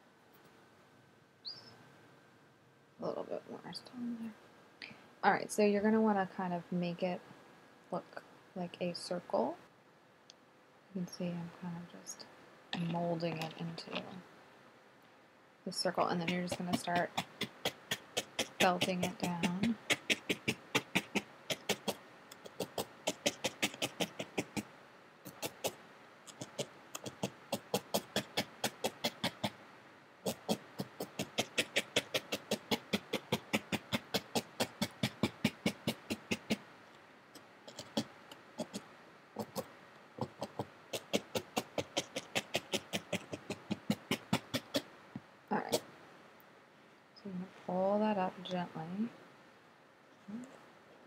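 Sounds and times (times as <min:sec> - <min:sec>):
felting needle poking through wool: 0:15.8 - 0:29.6, 0:30.3 - 0:36.6, 0:39.4 - 0:44.9.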